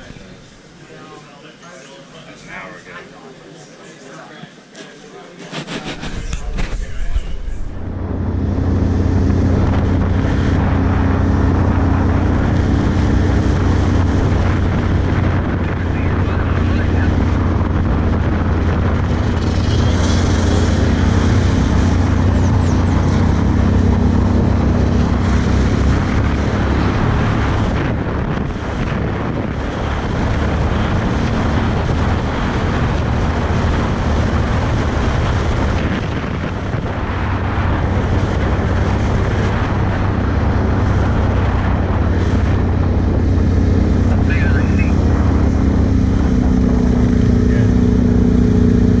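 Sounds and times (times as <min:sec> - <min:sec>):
wind noise on microphone: 0:05.7 - 0:49.0
atv engine running: 0:07.4 - 0:49.0.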